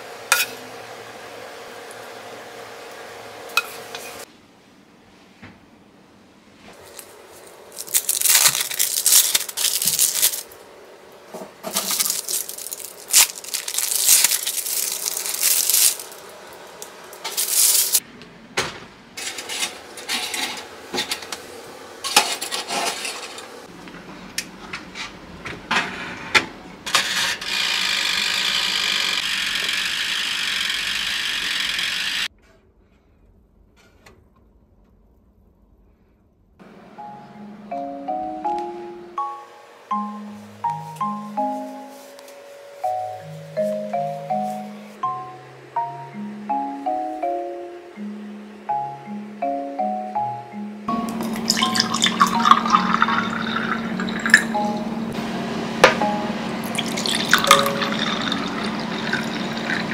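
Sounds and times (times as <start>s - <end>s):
plastic film crinkling: 6.8s - 10.6s, 11.7s - 16.4s, 17.3s - 18.0s.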